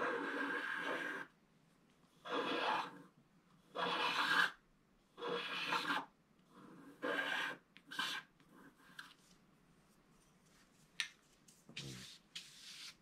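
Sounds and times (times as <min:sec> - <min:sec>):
stylus scraping coated sheet: 0:10.6 - 0:13.0.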